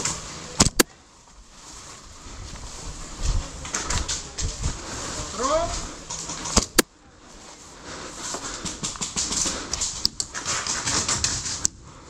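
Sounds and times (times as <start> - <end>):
sharp clicks: 0.0 - 0.9
gear rustling: 0.0 - 6.8
person panting hard: 3.9 - 6.6, 7.6 - 10.8.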